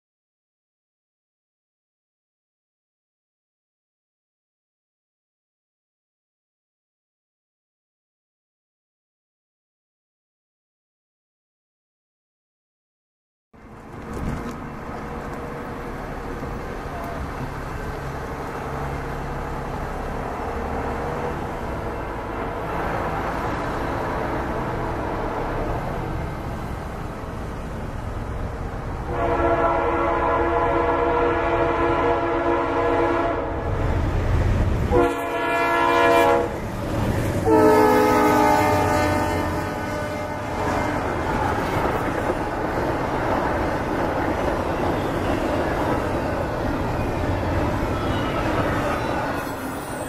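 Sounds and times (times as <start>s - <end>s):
diesel locomotive engines rumbling: 13.6s - 50.0s
train air horn: 29.1s - 33.7s, 34.9s - 36.6s, 37.4s - 41.2s.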